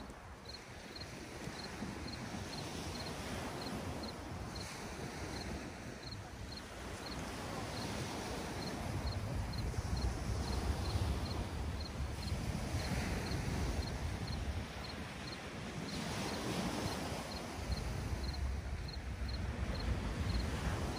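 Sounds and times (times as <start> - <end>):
cricket chirping: 0.0 - 20.9
surf on beach: 0.0 - 20.9
wind rumbling on microphone: 0.0 - 20.9.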